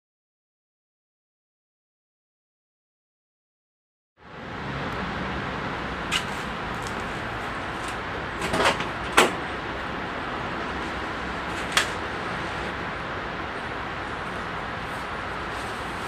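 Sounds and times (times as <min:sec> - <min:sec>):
steady background hiss: 0:04.2 - 0:16.0.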